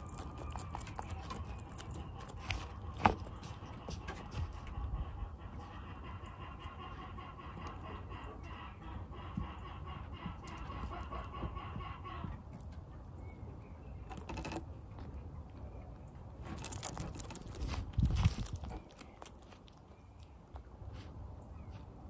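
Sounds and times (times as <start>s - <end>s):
lizard chewing a worm: 0.0s - 5.0s, 9.4s - 13.2s, 16.3s - 21.5s
chickens clucking: 0.0s - 13.2s.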